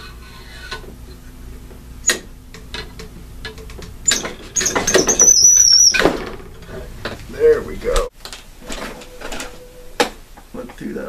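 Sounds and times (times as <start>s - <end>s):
high squeak: 4.1s - 6.1s.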